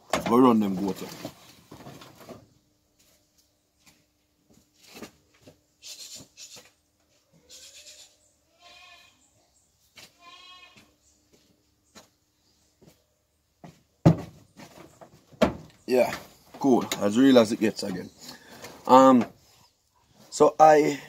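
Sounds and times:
goats bleating faintly: 7.3 - 9.4, 10.1 - 10.9.

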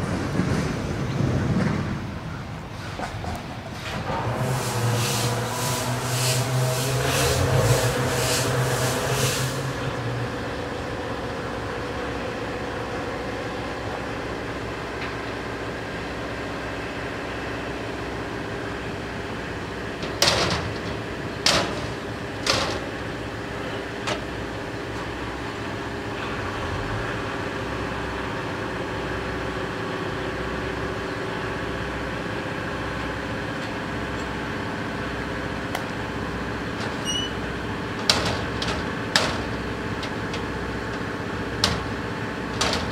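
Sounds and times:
diesel locomotives idling: 0.0 - 42.9
metal door bangs: 38.0 - 42.9.

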